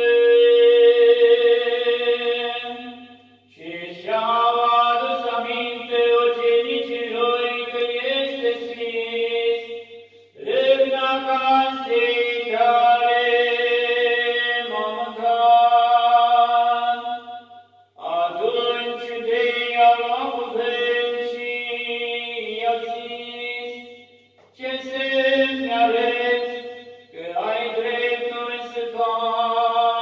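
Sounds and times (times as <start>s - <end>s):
man chanting: 0.0s - 17.4s, 18.0s - 30.0s.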